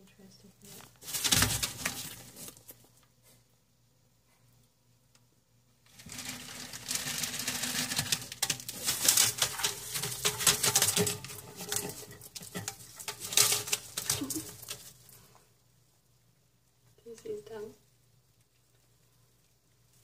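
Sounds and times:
newspaper crinkling and rustling: 0:00.7 - 0:02.8, 0:06.0 - 0:15.0.

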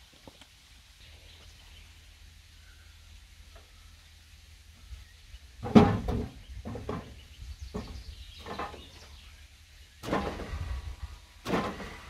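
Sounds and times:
log knocking and scraping on wood: 0:05.6 - 0:09.1, 0:11.4 - 0:12.0.

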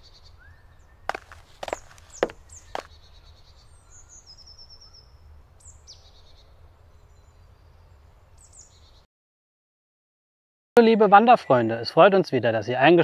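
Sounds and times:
bird trill: 0:00.0 - 0:09.0
songbirds calling: 0:00.0 - 0:09.1.

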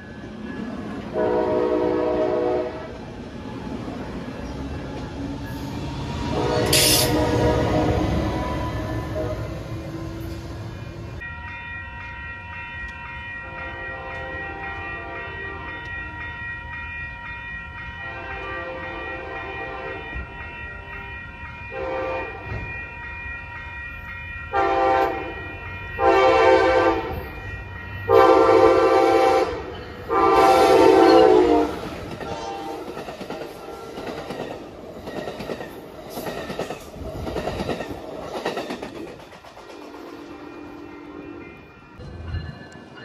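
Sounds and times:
train horn blasts: 0:01.1 - 0:03.0, 0:06.3 - 0:09.9, 0:13.4 - 0:16.2, 0:18.0 - 0:21.0, 0:21.7 - 0:22.7, 0:24.5 - 0:27.4, 0:28.1 - 0:34.0, 0:39.8 - 0:41.5.

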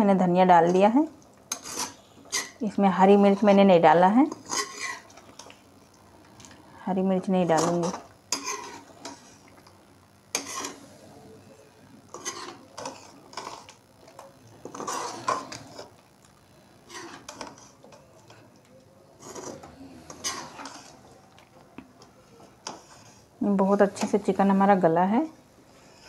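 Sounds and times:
ladle scraping and knocking pot: 0:04.3 - 0:05.2, 0:07.6 - 0:09.4, 0:10.3 - 0:10.8, 0:12.1 - 0:13.7, 0:14.6 - 0:15.9, 0:19.2 - 0:20.9.

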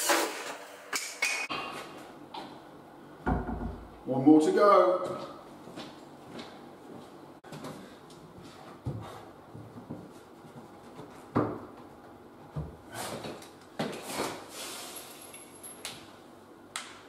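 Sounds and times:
wooden door knocks and bumps: 0:03.2 - 0:03.9.

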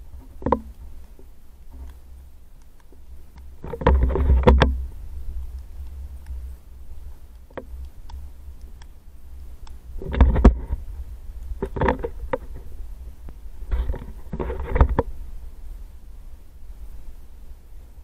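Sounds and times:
wind rumble on microphone: 0:03.6 - 0:08.2, 0:09.4 - 0:18.0.

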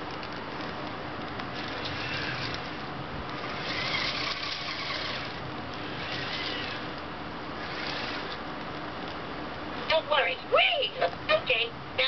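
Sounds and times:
toy robot motors whirring: 0:01.5 - 0:07.0, 0:07.6 - 0:08.4.

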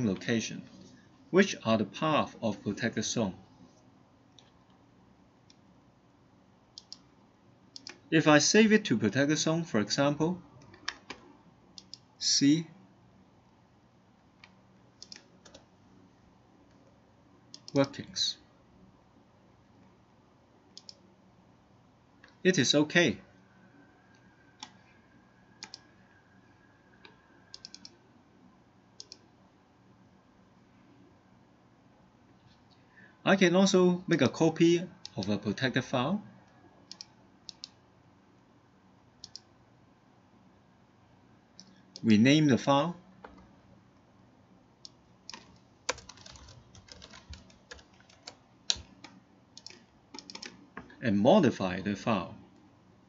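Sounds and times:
low room hum: 0:00.0 - 0:53.0
typing on computer keyboard: 0:14.4 - 0:15.6, 0:25.6 - 0:25.9, 0:45.3 - 0:50.6.

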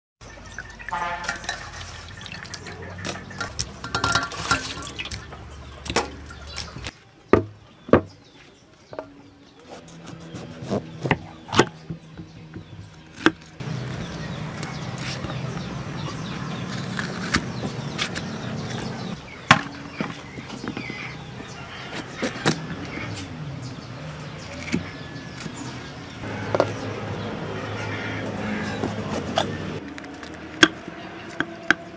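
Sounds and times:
water splashing in steel bowl: 0:00.2 - 0:06.9.

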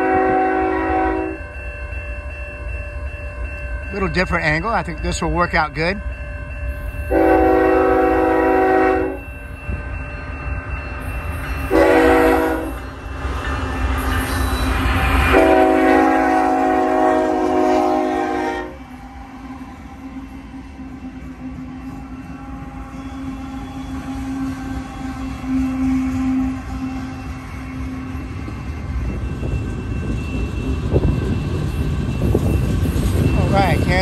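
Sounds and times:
locomotive air horn blasts: 0:00.0 - 0:01.4, 0:07.1 - 0:09.2, 0:11.7 - 0:12.8, 0:15.3 - 0:18.8, 0:25.3 - 0:27.0
diesel locomotive rumble: 0:03.8 - 0:34.0.

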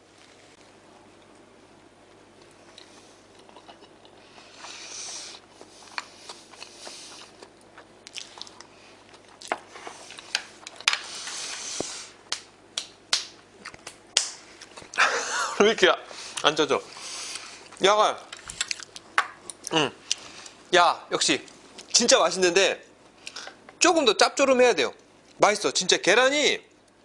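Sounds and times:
chewing: 0:02.4 - 0:11.6, 0:18.4 - 0:20.6.

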